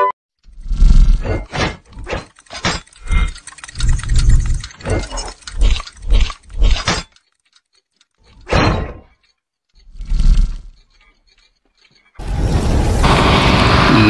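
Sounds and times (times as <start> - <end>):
metallic clanks: 1.3 - 12.2.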